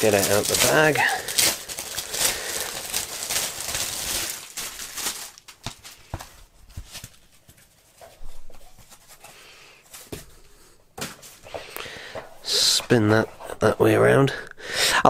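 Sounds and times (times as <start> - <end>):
plastic bag rustling: 0.0 - 10.1.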